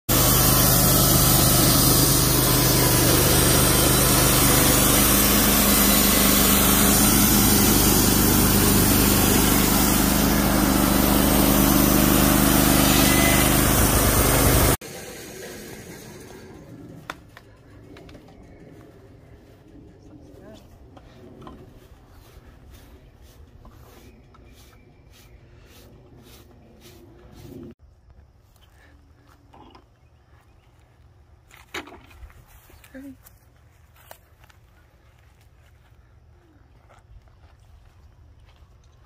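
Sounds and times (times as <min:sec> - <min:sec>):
band sawmill engine running: 0:00.1 - 0:27.8.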